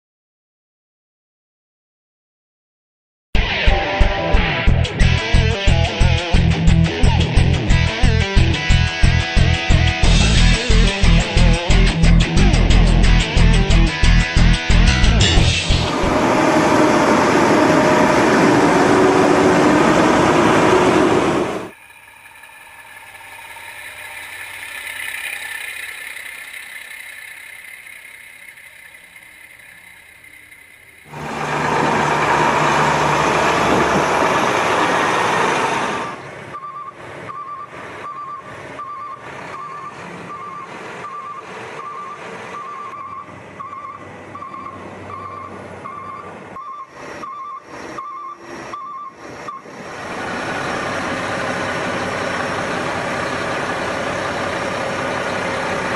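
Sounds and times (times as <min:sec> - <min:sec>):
loud steady truck noise: 0:04.7 - 0:55.9
vehicle noise: 0:04.9 - 0:55.9
truck reversing alarm beeps: 0:09.0 - 0:31.7, 0:35.6 - 0:55.9.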